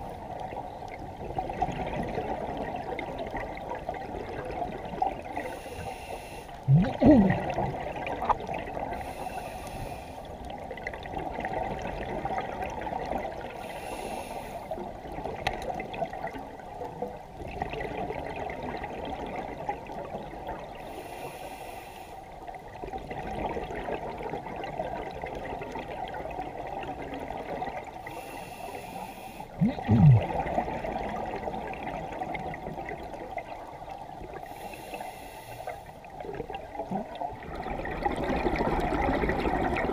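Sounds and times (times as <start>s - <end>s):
muffled underwater wash: 0.0s - 39.9s
loud bubbling rushes: 6.7s - 8.0s, 29.6s - 30.9s.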